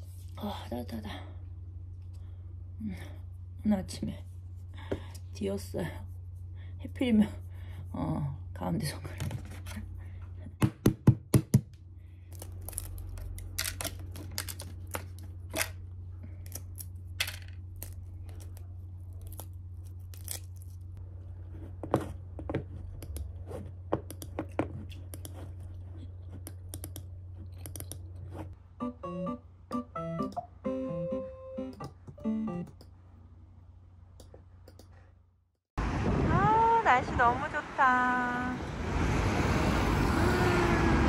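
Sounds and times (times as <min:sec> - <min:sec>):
steady low hum: 0:00.0 - 0:10.6
small objects clicking and knocking: 0:12.3 - 0:15.8, 0:16.4 - 0:18.6.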